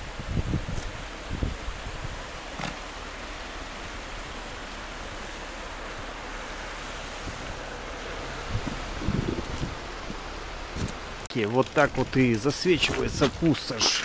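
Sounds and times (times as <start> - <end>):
wind blowing over microphone: 0.0 - 2.4, 8.3 - 11.0.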